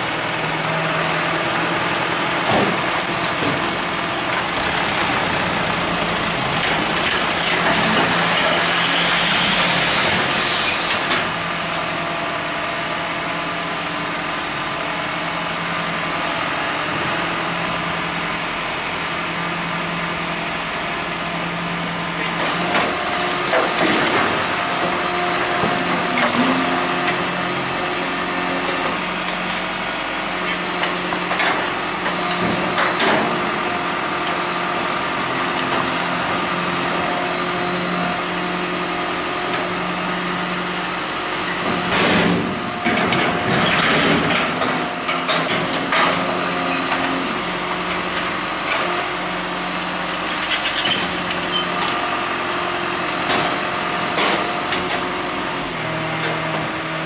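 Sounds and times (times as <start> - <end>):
garbage truck engine running: 0.0 - 57.0
high steady hydraulic whine: 3.8 - 41.6.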